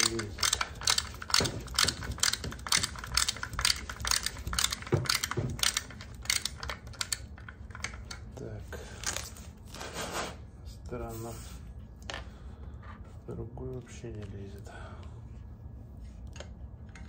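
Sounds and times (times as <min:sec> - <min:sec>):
ratcheting screwdriver clicking: 0:00.0 - 0:08.2.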